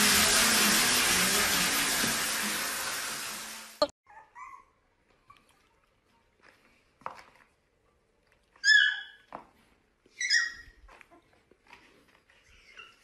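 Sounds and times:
puppy yipping: 4.0s - 4.8s, 8.6s - 9.3s, 10.1s - 11.4s, 12.4s - 13.0s.

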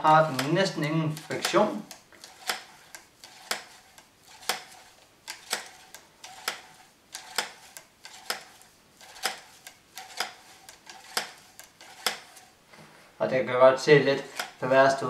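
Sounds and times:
cleaning rod clicking in barrel: 0.0s - 4.7s.

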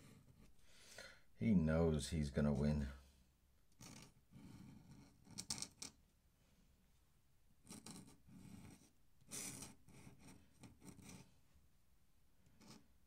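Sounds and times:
pen scratching on paper: 0.0s - 0.5s, 3.8s - 5.8s, 7.6s - 11.4s, 12.4s - 12.9s.

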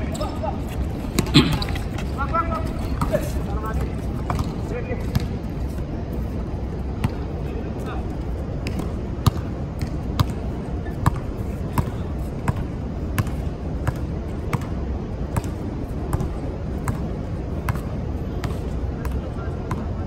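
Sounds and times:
basketball bouncing on court: 3.8s - 5.4s, 8.6s - 14.8s, 18.4s - 19.9s.

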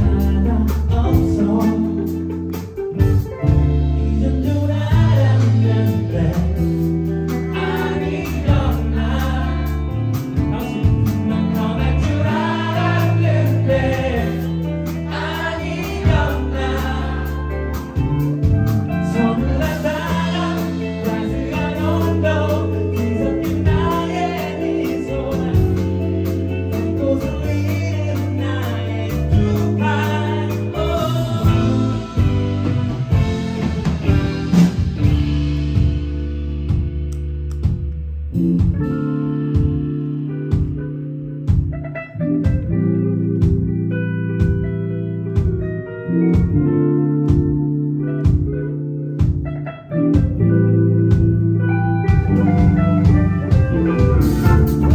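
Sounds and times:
person singing: 0.0s - 2.4s, 3.5s - 34.2s
live band music: 0.0s - 54.9s.

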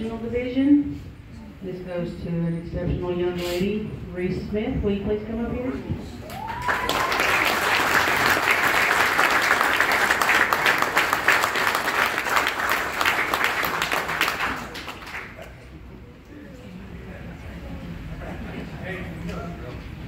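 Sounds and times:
audience applauding: 6.3s - 15.6s.

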